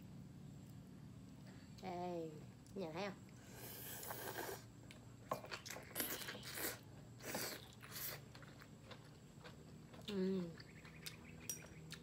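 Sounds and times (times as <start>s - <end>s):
crunchy chewing: 3.6s - 12.0s.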